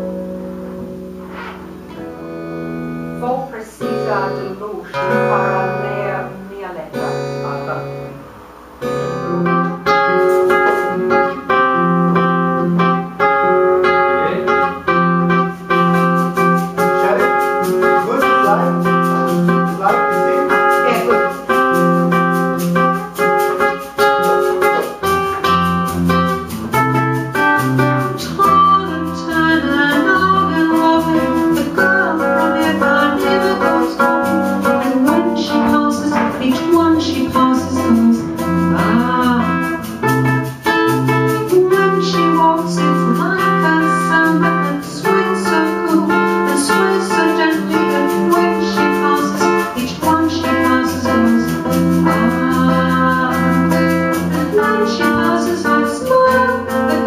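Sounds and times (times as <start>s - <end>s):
acoustic guitar playing: 0.0s - 57.0s
woman singing: 3.2s - 8.0s, 28.0s - 57.0s.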